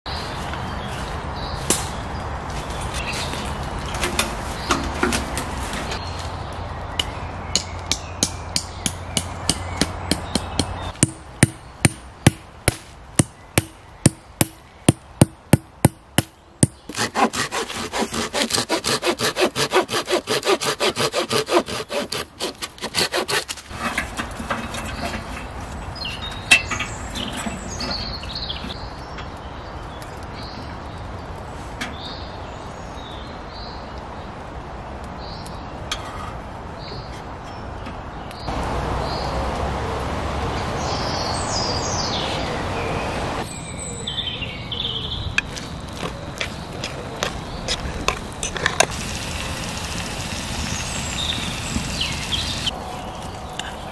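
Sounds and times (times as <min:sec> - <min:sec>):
birds chirping: 0:00.1 - 0:18.4, 0:24.7 - 0:34.4, 0:36.8 - 0:53.9
hand saw cutting wood: 0:16.9 - 0:23.8.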